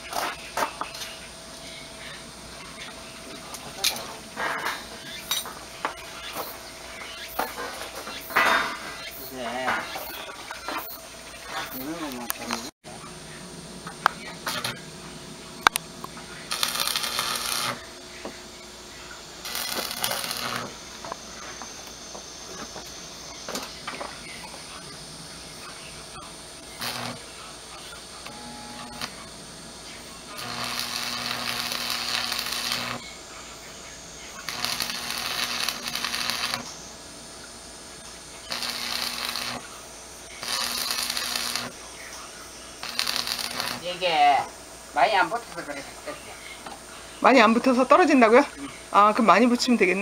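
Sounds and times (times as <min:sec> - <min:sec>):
welding arc crackling: 0:02.8 - 0:12.8, 0:14.0 - 0:14.9, 0:15.6 - 0:18.0, 0:19.4 - 0:37.0, 0:38.1 - 0:42.0, 0:42.7 - 0:46.0.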